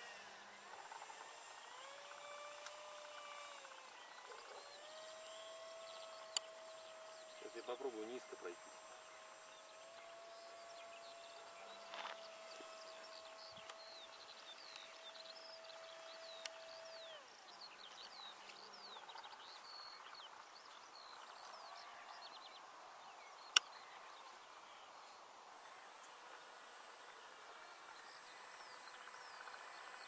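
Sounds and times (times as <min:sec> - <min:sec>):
high whine gliding down: 0:00.0 - 0:17.6
birds chirping: 0:00.0 - 0:30.0
sharp click: 0:23.5 - 0:23.7.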